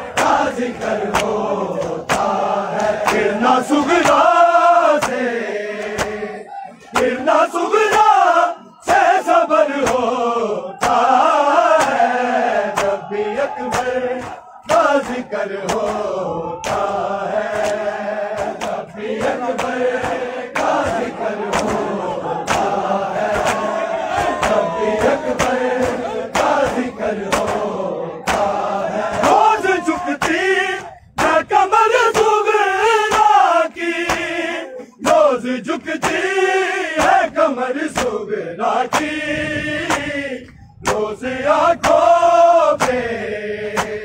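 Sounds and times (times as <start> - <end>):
men chanting in chorus: 0.0 - 44.0
chest-beating slaps: 1.1 - 3.3, 5.8 - 6.2, 10.8 - 11.1, 12.7 - 13.0, 17.6 - 21.9, 24.4 - 27.6, 28.3 - 29.4, 30.2 - 30.4, 43.7 - 44.0.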